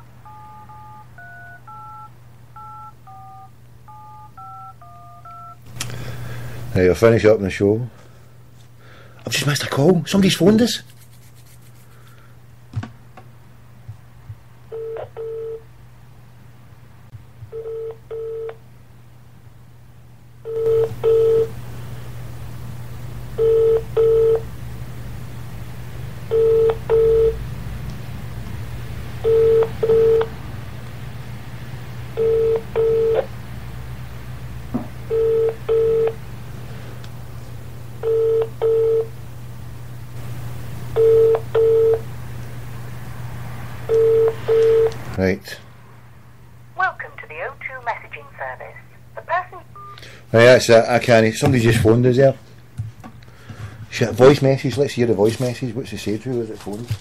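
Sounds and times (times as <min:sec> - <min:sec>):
phone line hum: 0:00.0 - 0:06.6, 0:14.6 - 0:15.7, 0:17.4 - 0:18.6, 0:20.4 - 0:21.7, 0:22.8 - 0:24.6, 0:26.2 - 0:27.5, 0:29.2 - 0:30.5, 0:32.1 - 0:33.4, 0:35.0 - 0:36.4, 0:37.8 - 0:39.4, 0:40.2 - 0:42.2, 0:43.8 - 0:45.1, 0:46.8 - 0:50.2
telephone ringback tone: 0:00.2 - 0:05.6, 0:14.7 - 0:15.6, 0:17.5 - 0:18.6, 0:20.5 - 0:21.5, 0:23.4 - 0:24.4, 0:26.3 - 0:27.4, 0:29.2 - 0:30.3, 0:32.2 - 0:33.3, 0:35.1 - 0:36.2, 0:38.0 - 0:39.1, 0:41.0 - 0:42.0, 0:43.9 - 0:44.9.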